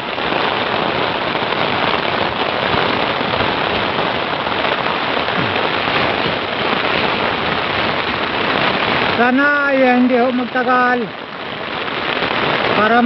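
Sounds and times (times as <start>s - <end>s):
heavy rain pouring: 0.0s - 13.0s
raindrops hitting near microphone: 0.0s - 13.0s.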